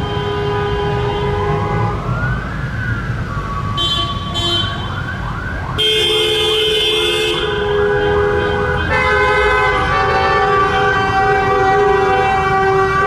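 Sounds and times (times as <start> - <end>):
multi-tone siren horn: 0.0 - 13.0
police siren wailing: 0.0 - 13.0
police siren yelping: 1.2 - 6.8.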